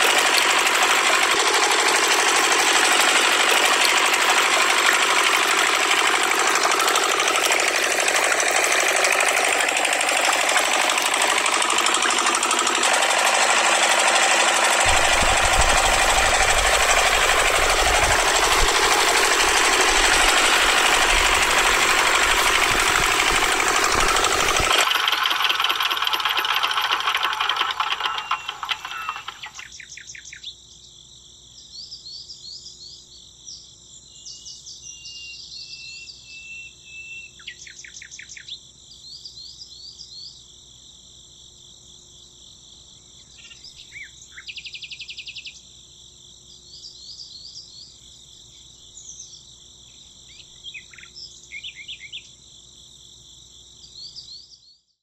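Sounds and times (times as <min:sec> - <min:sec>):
model diesel engine running: 0:00.0 - 0:29.7.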